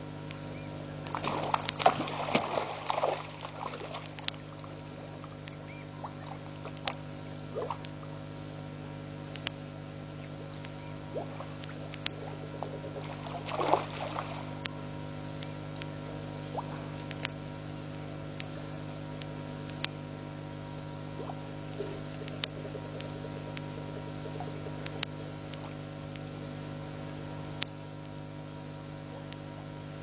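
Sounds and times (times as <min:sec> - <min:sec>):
low electrical hum: 0:00.0 - 0:30.0
frogs calling: 0:00.2 - 0:30.0
sharp clicks: 0:09.2 - 0:09.7, 0:21.7 - 0:26.5.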